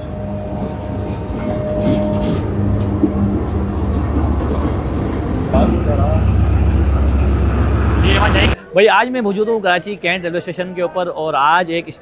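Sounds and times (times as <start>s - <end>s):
diesel locomotive engine drone: 0.0s - 8.6s.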